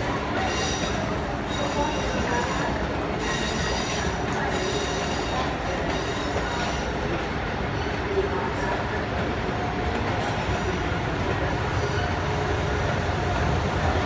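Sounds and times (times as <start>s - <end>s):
train wheels rumbling on rail: 0.0s - 14.0s
high wheel squeal: 0.4s - 7.0s.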